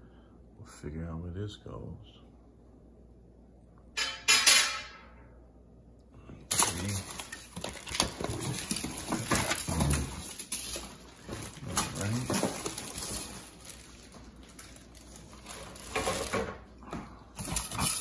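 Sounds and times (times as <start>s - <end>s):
plastic wrapping crinkling: 6.5s - 16.5s.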